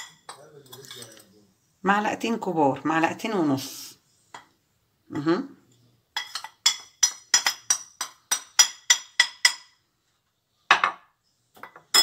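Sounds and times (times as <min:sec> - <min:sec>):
ceramic container tapping on glass bowl: 0:10.7 - 0:11.0.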